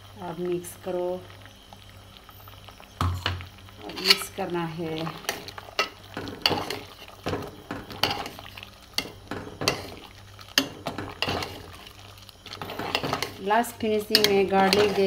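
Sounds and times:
ladle scraping metal pot: 3.8s - 4.4s, 5.1s - 15.0s.

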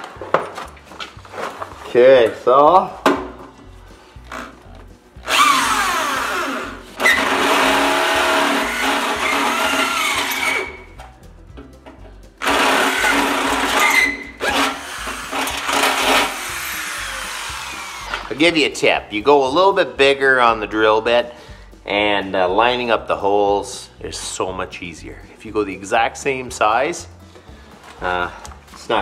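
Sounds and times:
electric drill boring through metal: 5.2s - 10.9s, 12.4s - 18.3s.

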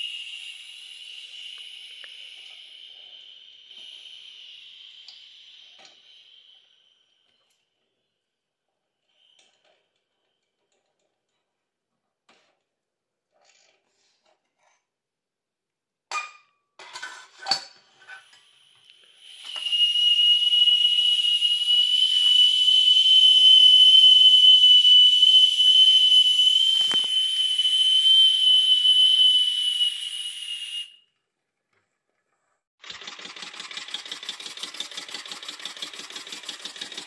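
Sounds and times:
steam whistle blowing: 0.0s - 7.2s, 19.0s - 31.0s
steam hissing: 0.0s - 7.4s, 18.3s - 30.8s.

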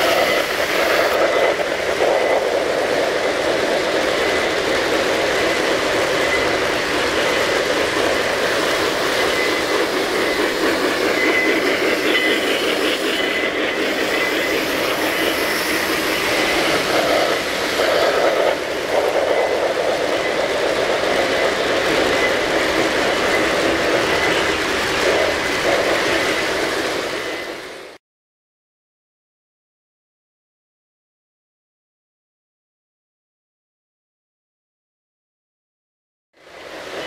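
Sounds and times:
model trains rumbling on track: 0.0s - 28.0s, 36.4s - 37.0s.

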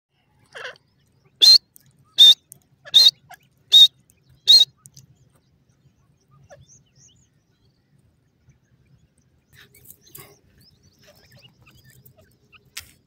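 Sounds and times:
francolin shrill calls: 0.5s - 4.8s.

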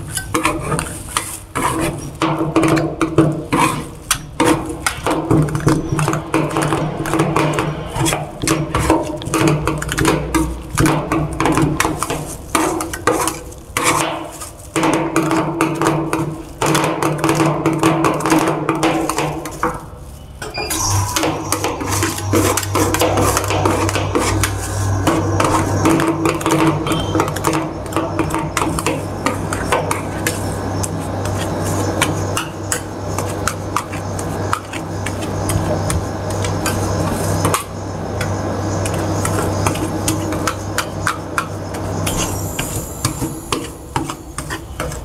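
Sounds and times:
steady low hum: 0.0s - 45.0s
deeper hum: 5.2s - 11.8s, 19.3s - 44.8s.

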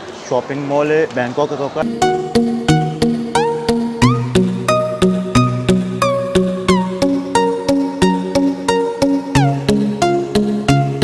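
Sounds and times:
plucked note pattern music: 1.8s - 11.0s.

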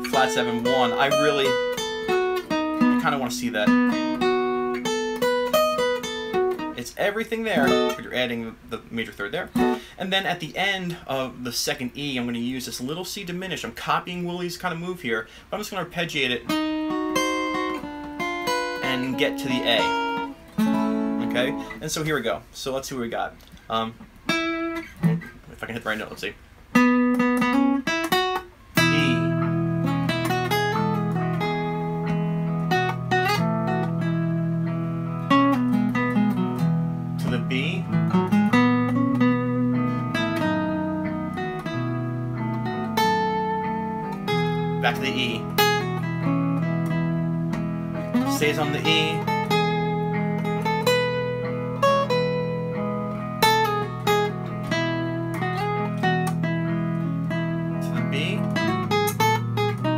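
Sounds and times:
acoustic guitar lead solo: 0.0s - 59.9s
looped backing chord: 7.5s - 8.1s, 16.5s - 21.9s, 26.8s - 59.9s.

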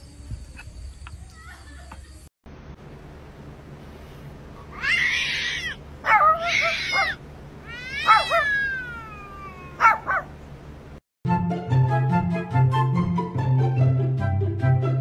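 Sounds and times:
cat yowling: 4.7s - 10.3s.

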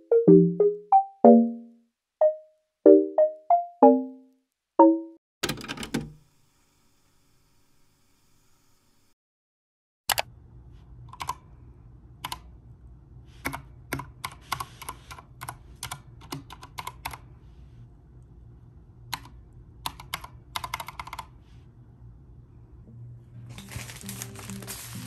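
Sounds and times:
music: 0.0s - 5.2s, 22.9s - 25.0s
mechanical keyboard typing: 11.1s - 11.4s, 13.4s - 17.2s, 19.1s - 21.3s.

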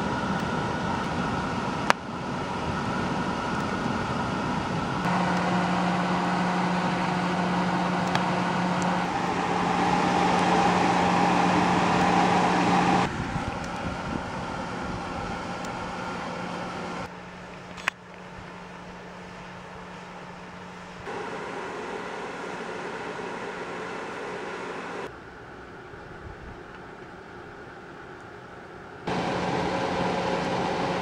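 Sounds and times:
electric blower humming: 0.0s - 17.1s, 21.1s - 25.1s, 29.1s - 31.0s.

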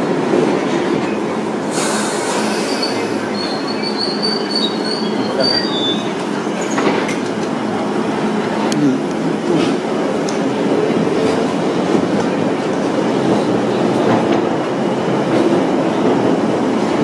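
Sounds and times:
high wavering brake squeal: 2.3s - 6.8s.

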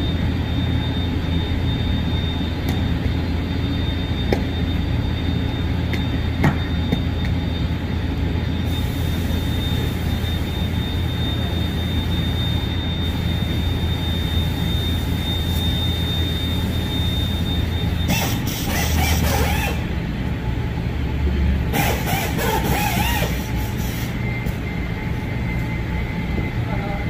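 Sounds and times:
thin high whine: 0.0s - 19.9s
low machinery hum: 0.0s - 27.0s.

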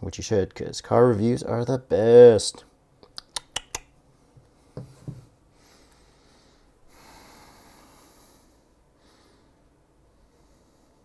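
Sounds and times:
faint breath-like hiss: 5.5s - 11.0s.

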